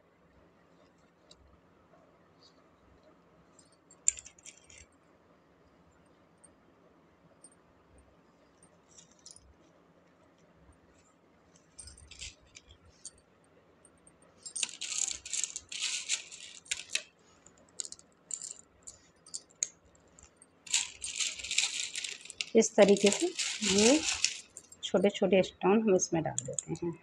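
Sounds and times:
pebbles clinking together: 11.8s - 12.8s, 14.4s - 25.6s.

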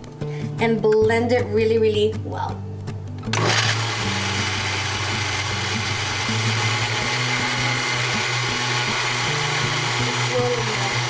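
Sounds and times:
blender motor whirring: 3.3s - 11.0s.

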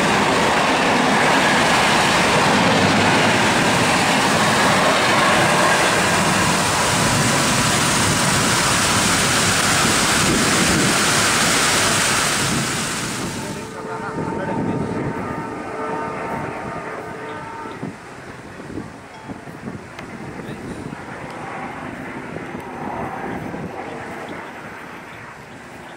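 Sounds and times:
rain hissing: 0.0s - 13.8s
train rushing past: 0.0s - 25.9s.

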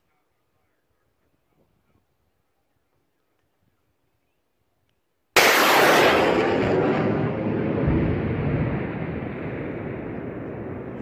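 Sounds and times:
rocket launch blast: 5.4s - 11.0s
rocket rushing roar: 5.4s - 11.0s.

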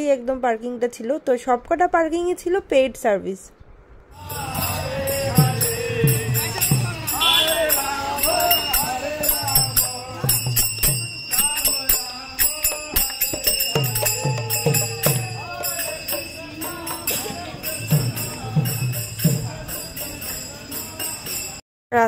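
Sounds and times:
deep drum strokes: 4.2s - 11.4s
hand cymbals ringing: 4.2s - 21.6s
people singing: 4.2s - 21.6s.

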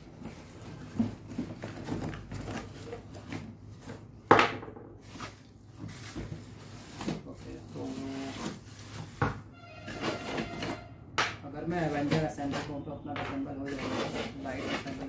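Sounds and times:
plastic wrapping rustling: 0.0s - 4.3s, 5.0s - 10.9s.

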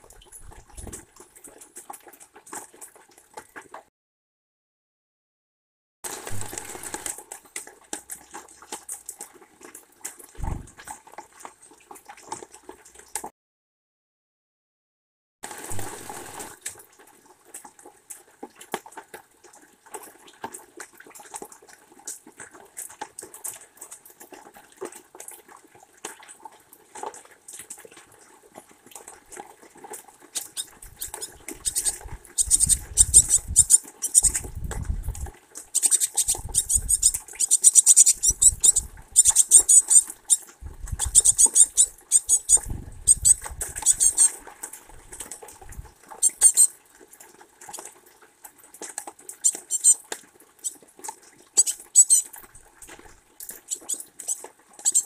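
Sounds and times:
bird scratching in bird feeder: 30.4s - 44.4s, 46.2s - 46.7s, 49.4s - 50.0s, 51.6s - 52.2s.

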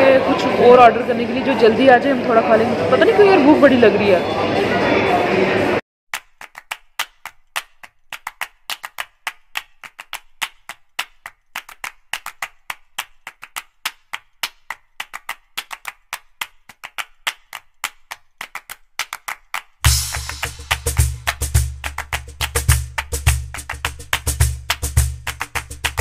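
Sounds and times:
sharp dry percussive clicks: 6.2s - 26.0s.

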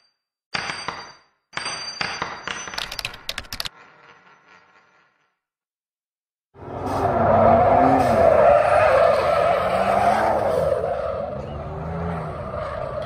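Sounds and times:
engine revving: 6.6s - 13.0s.

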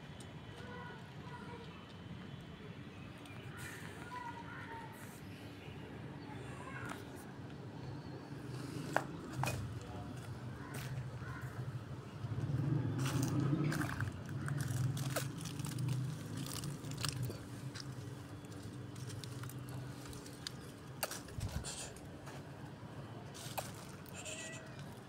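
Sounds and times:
cat crunching food: 13.4s - 18.0s.

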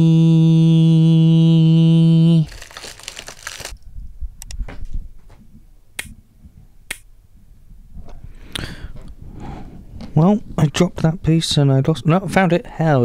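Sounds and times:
man singing a long note: 0.0s - 2.7s
crinkling and rustling: 2.5s - 3.8s.

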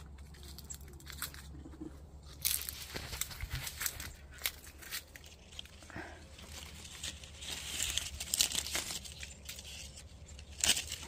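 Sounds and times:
leaves and twigs rustling: 0.0s - 11.0s
twigs snapping: 2.3s - 11.0s.

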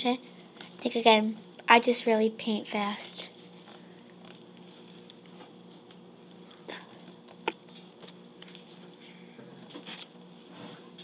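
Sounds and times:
low background hum: 0.0s - 11.0s
paintbrush dabbing and rubbing: 4.7s - 8.9s
small ticks: 5.0s - 8.9s.

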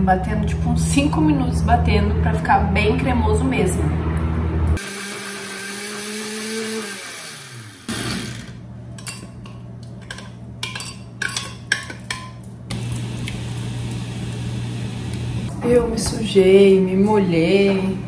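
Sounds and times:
blender motor winding down: 4.8s - 8.6s.

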